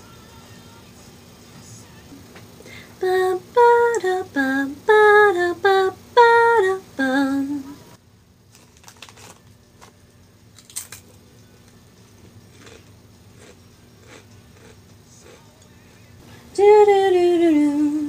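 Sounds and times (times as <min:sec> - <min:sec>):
snack bag rustling: 0:08.5 - 0:10.0, 0:12.5 - 0:15.5.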